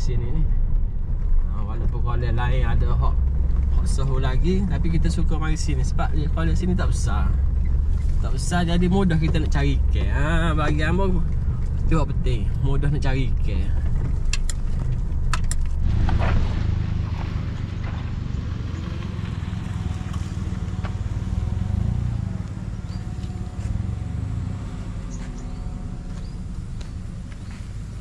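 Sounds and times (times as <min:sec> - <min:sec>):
car engine and tyre rumble: 0:00.0 - 0:28.0.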